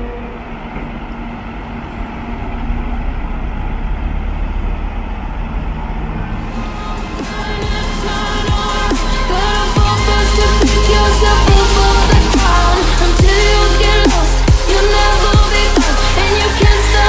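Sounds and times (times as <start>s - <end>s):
tractor diesel engine running: 0.0s - 17.0s
music: 6.3s - 17.0s.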